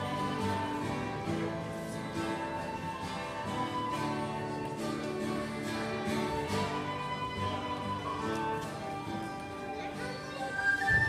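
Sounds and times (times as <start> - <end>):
folk melody line: 0.0 - 11.0
guitar picking: 0.0 - 11.0.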